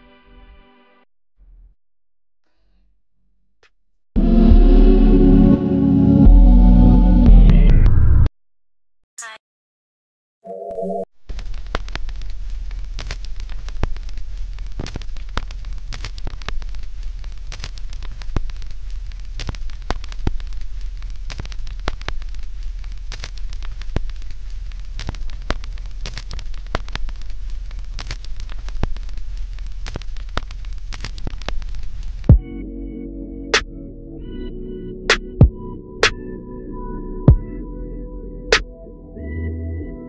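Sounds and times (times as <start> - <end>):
crackling and popping: 11.2 - 32.4.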